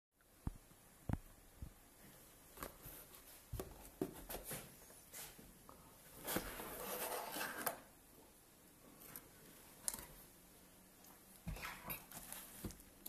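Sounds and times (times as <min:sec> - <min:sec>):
cardboard scraping and rustling: 0:06.1 - 0:07.9.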